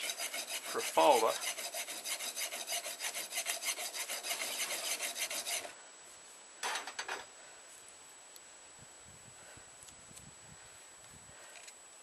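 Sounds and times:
metal file rasping on knife blade: 0.0s - 5.7s.

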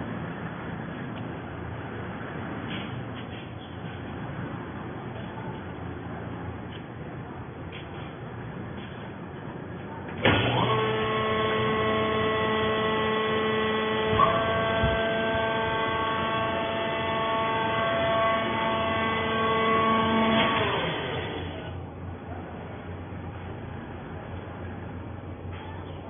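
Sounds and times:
hydraulic power unit whining: 6.6s - 26.0s
machine jolt: 10.2s - 11.0s.

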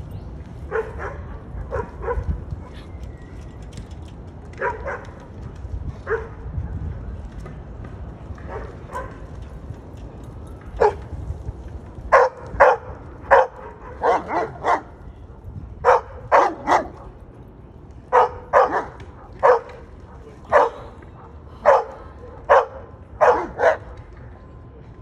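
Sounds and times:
large dog barking: 12.1s - 15.0s, 15.8s - 17.1s, 18.1s - 19.7s, 20.5s - 20.8s, 21.6s - 23.8s.

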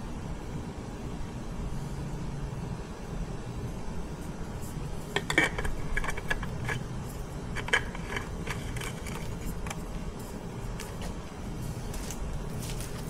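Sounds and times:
light metallic clicks and scrapes: 5.0s - 9.9s.

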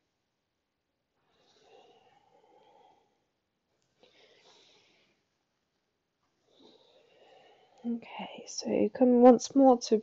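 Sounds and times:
soft breath: 1.1s - 5.5s, 6.3s - 8.5s.

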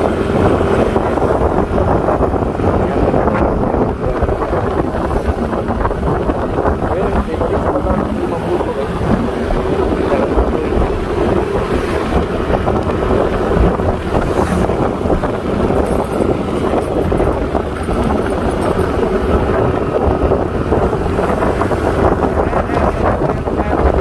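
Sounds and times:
scooter engine hum: 0.0s - 24.0s
wind on microphone: 0.0s - 24.0s.

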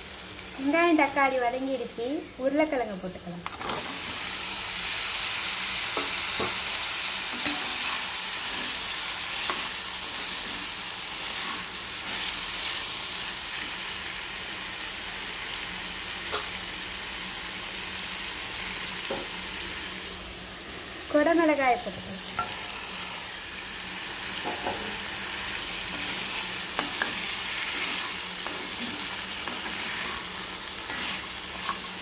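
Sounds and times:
potatoes sizzling in oil: 0.0s - 32.0s.

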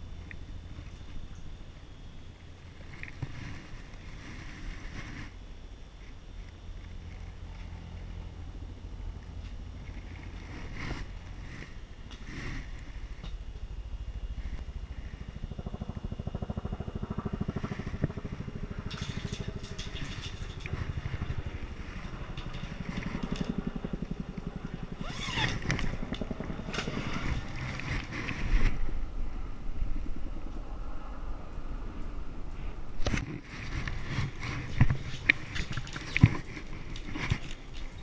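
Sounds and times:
engine running: 0.0s - 38.0s
clicks and rattles of gear: 18.8s - 23.6s, 25.0s - 28.8s, 33.0s - 38.0s.

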